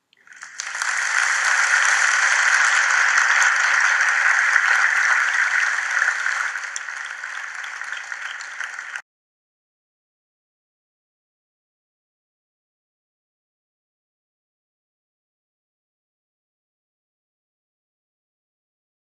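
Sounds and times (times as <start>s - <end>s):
many hands clapping: 0.2s - 9.0s.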